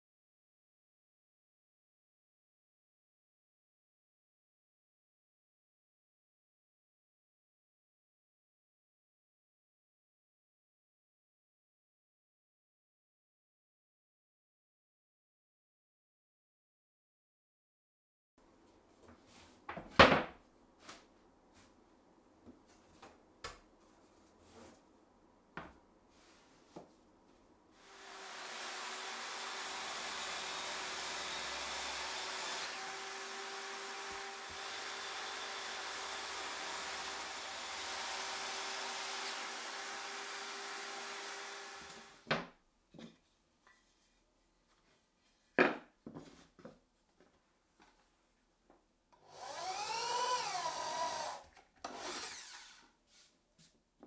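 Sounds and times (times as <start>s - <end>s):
circular saw cutting: 27.8s - 42.2s, 49.2s - 52.9s
boards knocking on bench: 45.6s - 46.3s.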